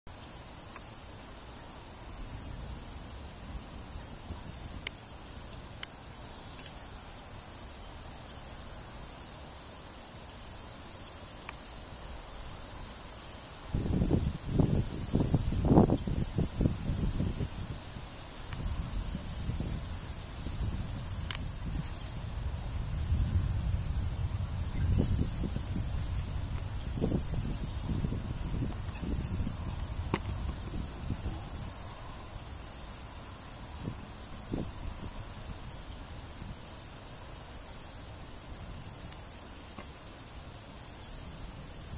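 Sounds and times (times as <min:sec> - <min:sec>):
insect chorus shrilling: 0:00.1 - 0:41.9
wind buffeting microphone: 0:13.6 - 0:32.5, 0:33.7 - 0:36.6.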